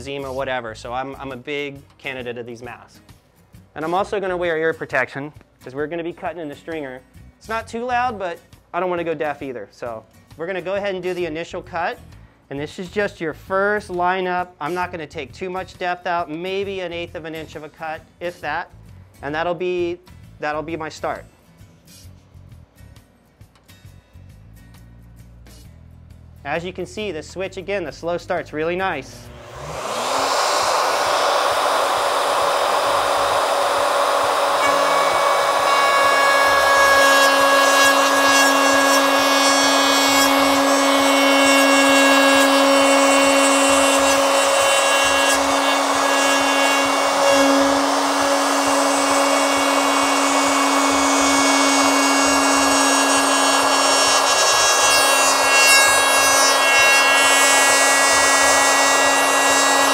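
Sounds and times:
router whining cutting foam: 29.1 - 59.9.

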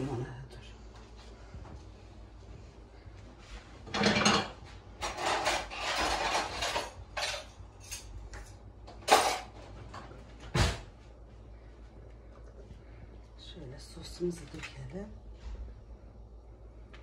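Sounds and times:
kitchenware handling noise: 3.8 - 10.1
utensils clattering against cookware: 3.9 - 10.0.

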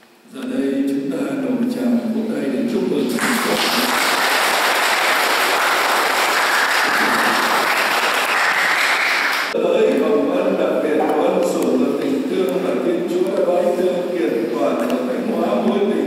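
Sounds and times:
crowd applauding: 3.2 - 9.6
person speaking: 10.8 - 16.0.

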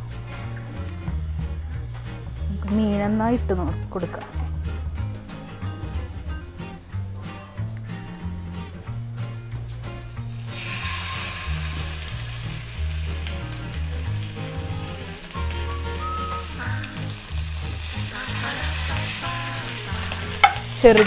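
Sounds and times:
background music with bass: 0.0 - 21.0
fish sizzling in oil: 10.0 - 21.0.

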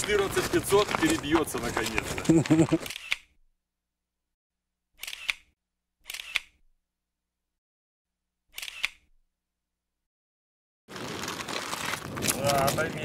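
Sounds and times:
camera shutter clicking: 2.7 - 3.3, 5.0 - 6.6, 8.5 - 9.1.

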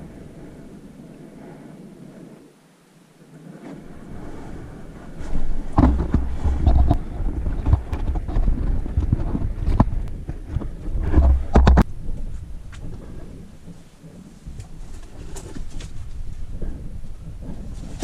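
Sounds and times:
heavy low thumps: 5.4 - 13.8.

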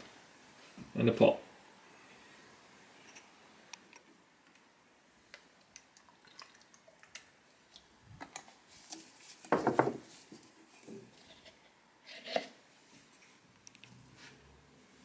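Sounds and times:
drips and splashes: 5.6 - 7.3
liquid pouring into plastic pot: 5.6 - 7.4
tin set down on wooden bench: 9.5 - 10.0.

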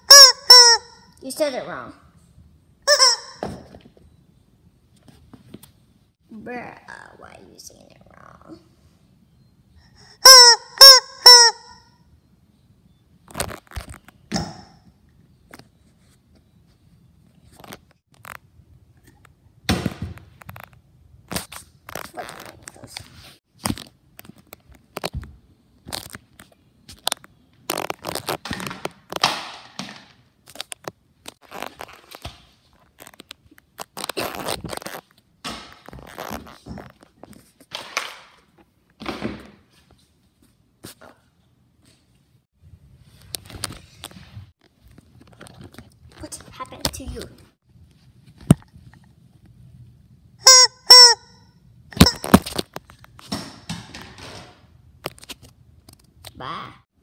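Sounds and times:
rubber chicken toy squawking: 0.0 - 1.0, 2.9 - 3.4, 10.0 - 11.8, 50.4 - 51.4, 52.0 - 52.4.

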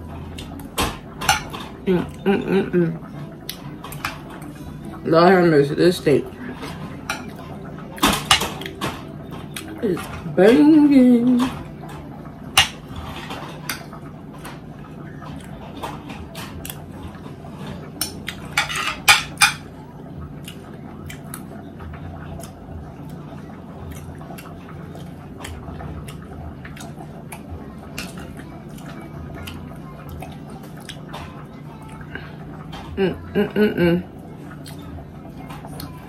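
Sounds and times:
low steady hum: 0.0 - 36.0
cutlery clinking and scraping on plate: 8.0 - 10.2, 15.8 - 19.7.

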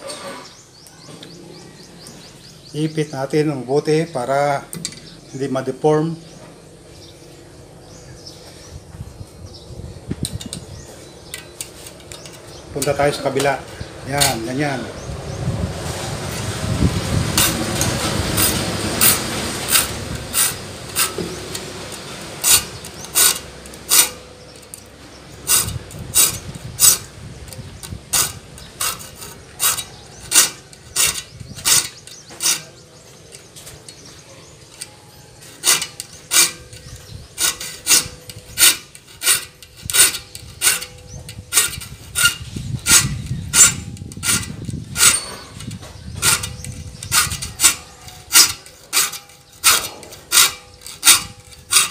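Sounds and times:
file rasping on saw teeth: 17.4 - 24.8, 25.4 - 27.1, 28.1 - 32.8, 34.8 - 51.9.

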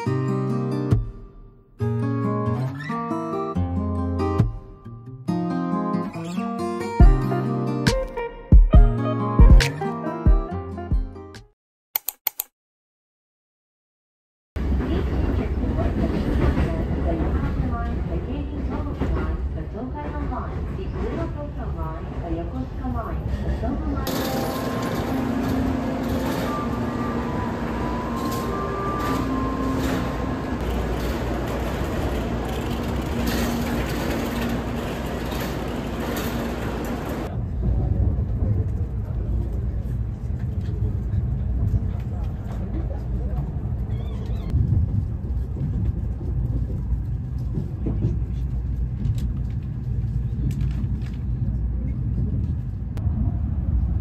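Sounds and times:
train and station noise: 14.6 - 54.0.

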